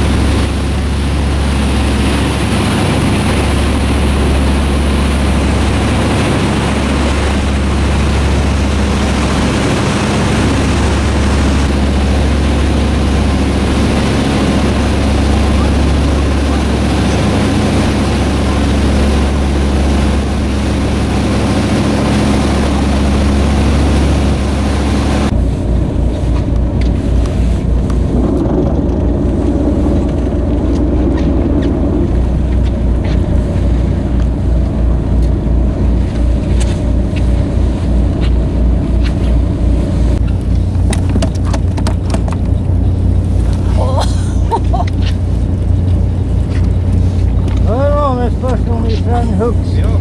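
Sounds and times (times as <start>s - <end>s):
boat engine running: 0.0s - 50.0s
water noise: 0.0s - 50.0s
wind: 0.0s - 50.0s.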